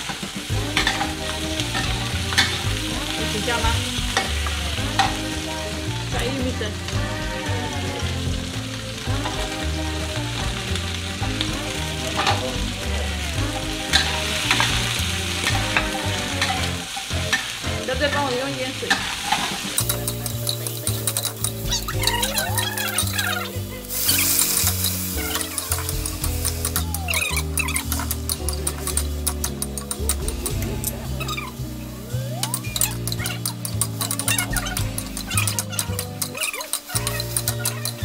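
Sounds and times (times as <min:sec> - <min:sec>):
peppers sizzling in a wok: 0:00.0 - 0:38.0
metal spatula scraping a wok: 0:18.9 - 0:31.8, 0:32.5 - 0:38.0.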